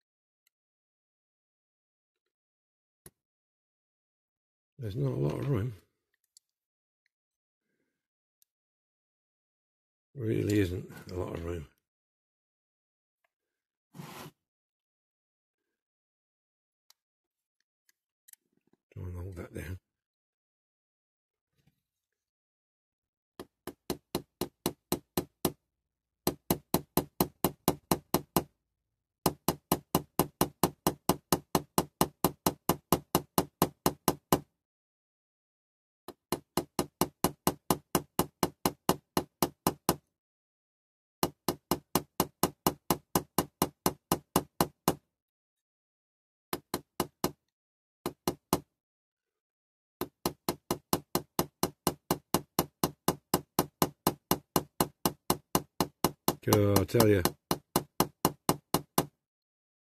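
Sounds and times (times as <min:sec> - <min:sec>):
small hammer tapping metal: 0:26.3 - 0:28.5, 0:29.3 - 0:34.4, 0:36.3 - 0:40.0, 0:41.2 - 0:45.0, 0:46.6 - 0:47.4, 0:50.0 - 0:59.1.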